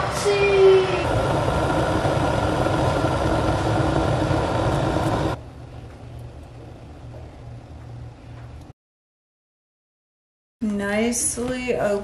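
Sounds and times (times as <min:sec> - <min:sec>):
kettle water hissing near boil: 0:00.0 - 0:05.4.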